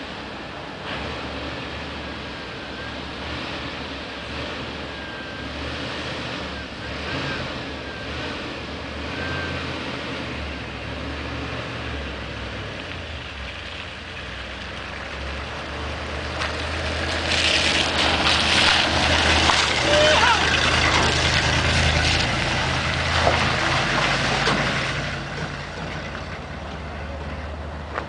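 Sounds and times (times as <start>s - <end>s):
truck engine droning: 0.0s - 28.0s
tyres crunching on gravel: 12.5s - 28.0s.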